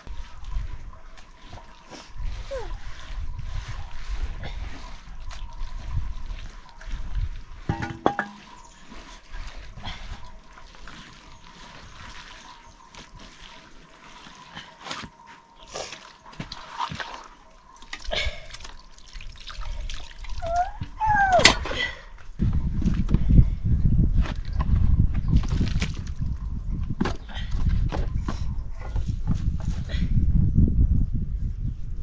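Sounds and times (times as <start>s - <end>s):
wet plaster squelching and slapping: 0.0s - 7.7s, 8.4s - 20.7s.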